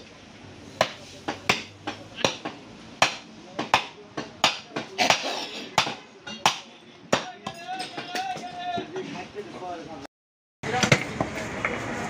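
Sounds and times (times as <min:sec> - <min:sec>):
blades chopping on wooden blocks: 0:00.8 - 0:05.2.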